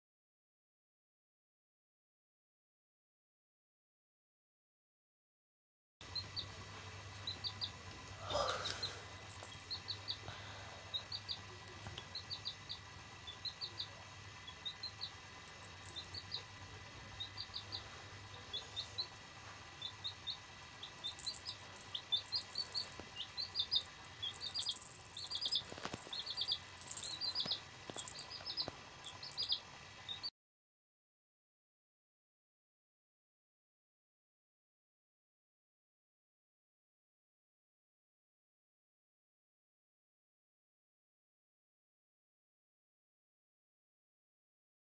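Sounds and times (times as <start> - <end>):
baby chick peeping: 6.0 - 30.3.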